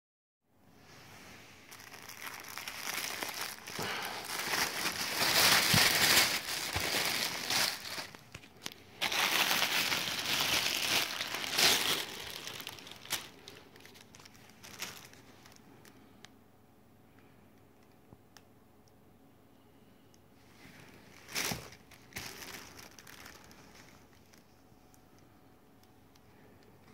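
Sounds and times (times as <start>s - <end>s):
plastic bag crinkling: 1.5s - 15.6s, 20.9s - 24.6s.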